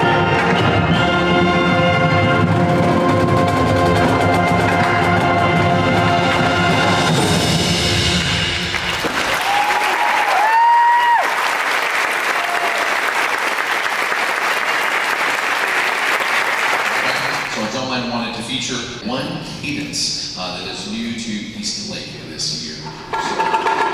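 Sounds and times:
marching band chord: 0.0 - 9.1
audience applause: 8.1 - 17.7.

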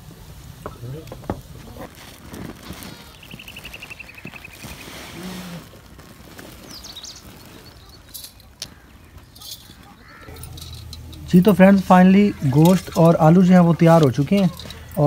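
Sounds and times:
bird trilling: 2.7 - 5.7, 6.6 - 15.0
short high bird chirps: 3.0 - 5.2.

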